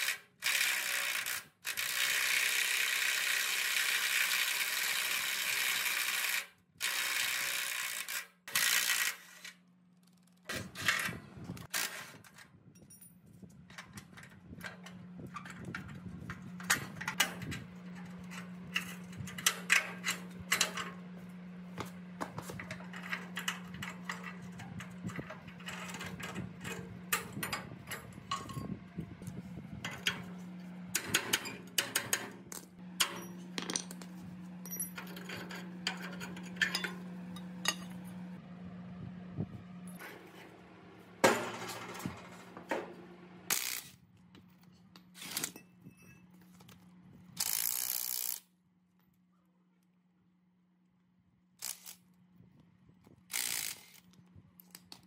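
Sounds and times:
steady low hum: 0:12.6 - 0:55.0
metal tools clinking and knocking: 0:12.7 - 0:14.3, 0:22.7 - 0:28.7, 0:33.0 - 0:38.1.

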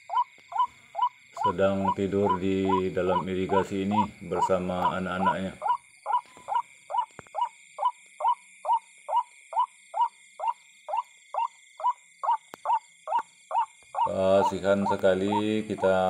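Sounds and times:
high insect drone: 0:00.0 - 0:16.0.

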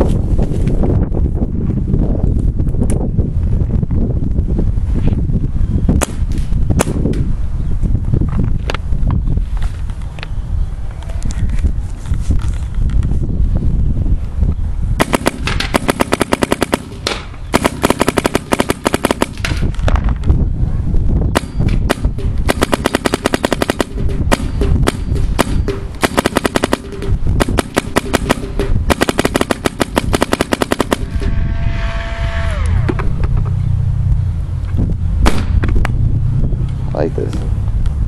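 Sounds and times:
paintball marker rapid shots: 0:06.0 - 0:07.1, 0:15.0 - 0:19.7, 0:21.4 - 0:31.3.

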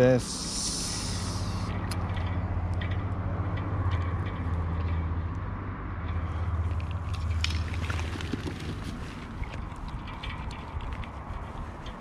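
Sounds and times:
fishing reel humming: 0:00.2 - 0:01.8.

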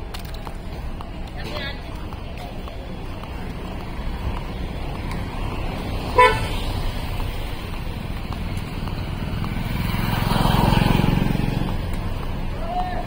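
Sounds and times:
street traffic rumble: 0:00.0 - 0:13.0
vehicle engine approaching: 0:02.9 - 0:13.0
vehicle horn toot: 0:06.1 - 0:06.6.

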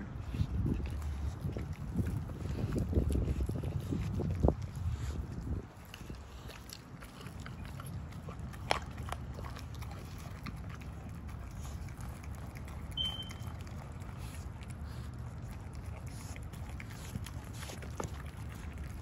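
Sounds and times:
dogs licking and chewing: 0:00.0 - 0:19.0
low steady rumble: 0:00.0 - 0:19.0
high chirp: 0:13.0 - 0:13.4.

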